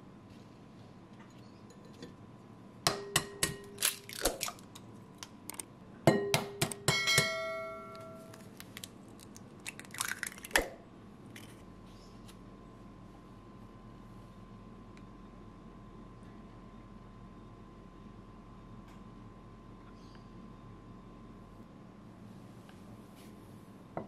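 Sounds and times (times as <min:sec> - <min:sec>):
eggs cracking against glass bowl: 0:03.3 - 0:05.6, 0:08.3 - 0:10.8
glass bowl ringing: 0:06.1 - 0:08.3.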